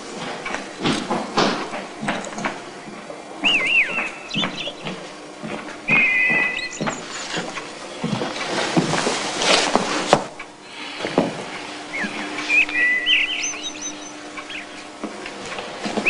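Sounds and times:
knocks and rustles: 0.0s - 3.1s, 3.9s - 12.4s
birds chirping: 2.4s - 8.1s, 10.8s - 15.0s
short curving bird calls: 3.4s - 4.9s, 5.9s - 6.9s, 11.9s - 14.9s.

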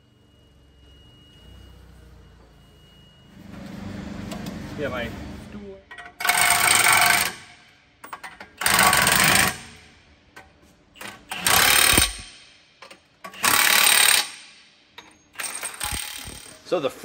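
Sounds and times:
impact wrench hammering: 5.9s - 16.6s.

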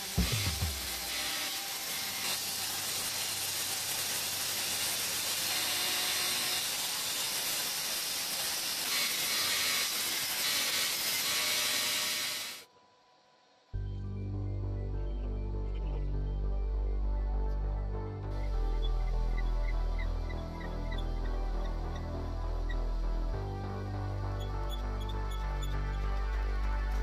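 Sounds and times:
belt sander grinding metal: 0.0s - 12.6s.

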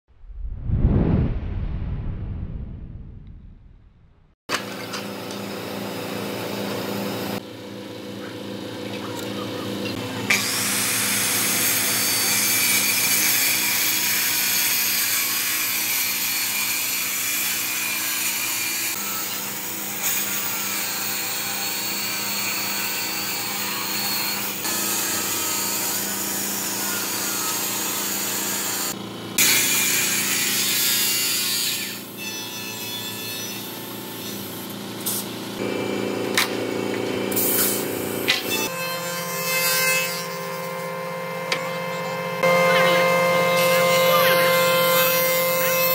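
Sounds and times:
low hum: 0.1s - 4.4s
circular saw cutting wood: 10.2s - 45.9s.

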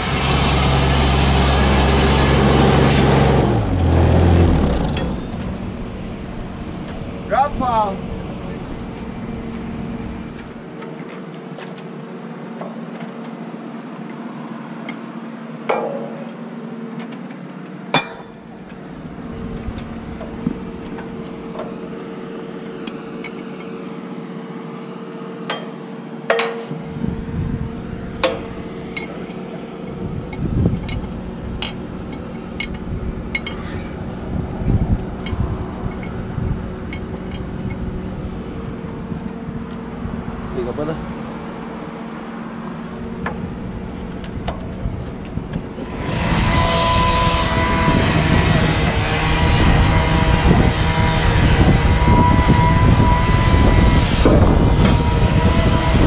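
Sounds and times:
steady machine hum: 0.0s - 56.0s
metal clanks and clinks: 4.8s - 5.4s, 15.7s - 16.3s, 18.0s - 18.4s, 30.8s - 33.8s.

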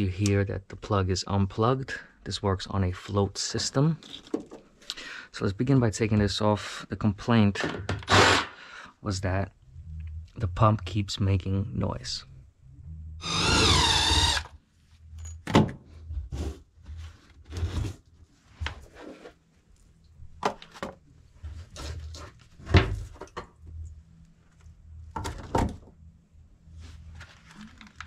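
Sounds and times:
cordless drill whirring: 13.2s - 14.5s.

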